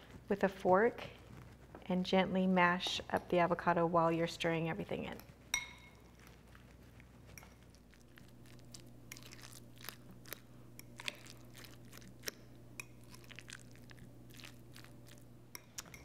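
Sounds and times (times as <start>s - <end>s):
fork mashing food squishing: 5.2s - 16.0s.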